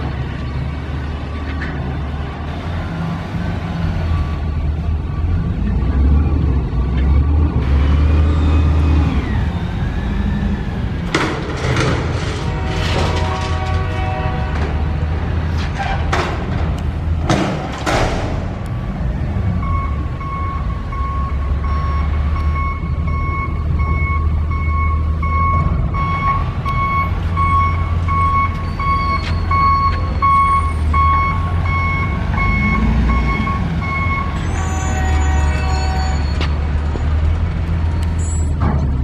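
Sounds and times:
vehicle backup alarm beeping: 19.5 - 36.5.

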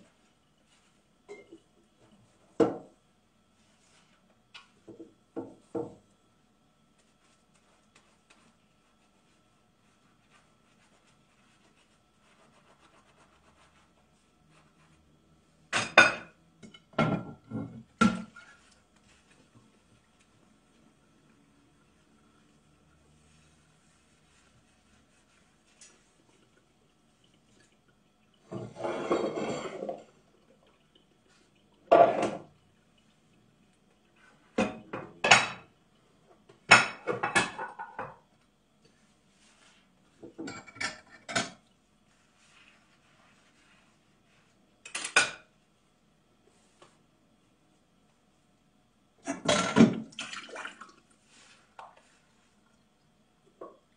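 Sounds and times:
dishes rubbing and clinking: 0.0 - 3.0, 28.4 - 30.2, 31.3 - 32.6, 36.6 - 38.2, 38.9 - 45.5
dishes clattering knocks: 15.7 - 18.4, 36.7 - 38.2
dishes and cutlery clattering: 28.5 - 30.1, 36.7 - 38.2, 40.2 - 41.6.

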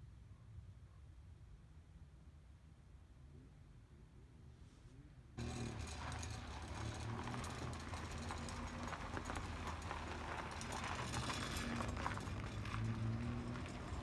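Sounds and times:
car engine hum: 5.4 - 14.0
tyres crunching on gravel: 5.4 - 14.0.

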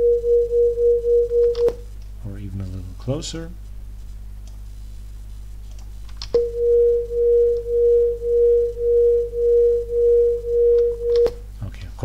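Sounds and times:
beating sine tones: 0.0 - 1.9, 6.4 - 11.5
click: 10.8 - 11.4.

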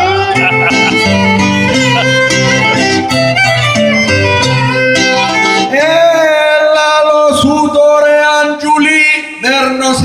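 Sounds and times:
plucked string accompaniment: 0.0 - 6.2
violin folk melody: 0.0 - 6.2.

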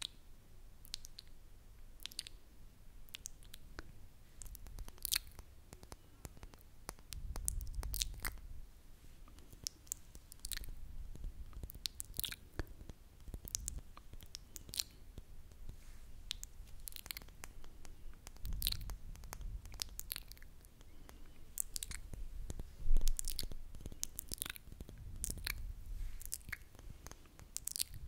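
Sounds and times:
wet mouth clicks and smacks: 0.8 - 1.4, 2.0 - 2.4, 3.1 - 8.5, 9.3 - 28.0
brush rustling on microphone: 15.6 - 16.2, 24.8 - 27.0.

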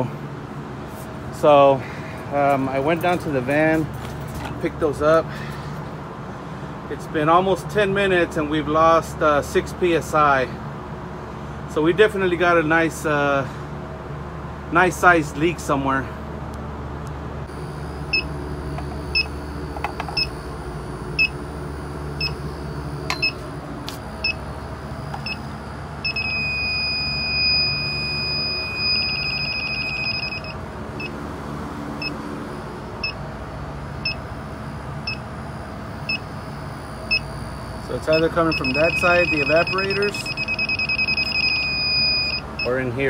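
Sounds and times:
equipment humming: 16.5 - 43.0
leak detector beeping: 17.5 - 31.2, 32.0 - 33.2, 34.0 - 35.3, 36.0 - 42.9
leak detector steady high tone: 17.5 - 31.2, 32.0 - 33.2, 34.0 - 42.9.

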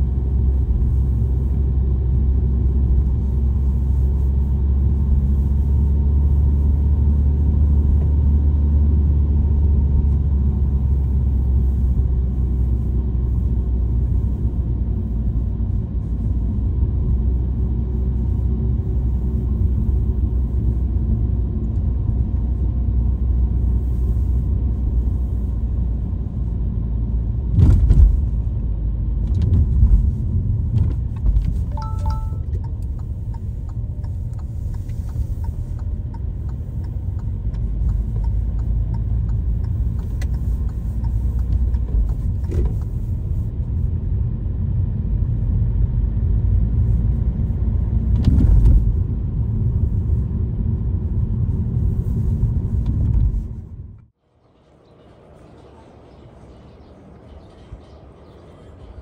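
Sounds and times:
engine and road rumble: 0.0 - 59.0
high beep: 31.7 - 32.5.

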